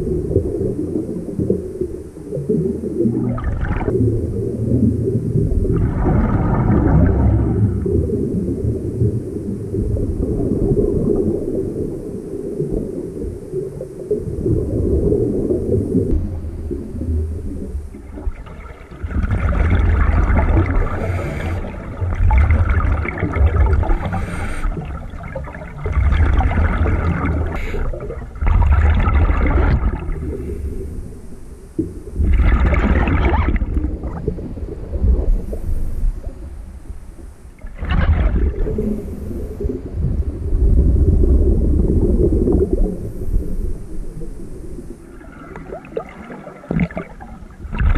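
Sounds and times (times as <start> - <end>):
exhaust bubbles rumbling underwater: 0.0 - 47.9
regulator inhalation hiss: 20.8 - 21.9, 23.9 - 25.0, 27.5 - 28.1, 30.2 - 32.2, 38.7 - 39.8.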